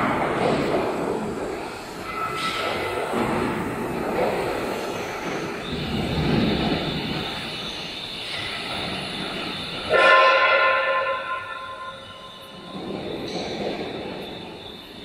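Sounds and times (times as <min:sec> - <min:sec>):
machinery noise: 0:00.0 - 0:15.0
thin high whine: 0:01.1 - 0:15.0
loud multi-pitch horn: 0:09.9 - 0:12.0.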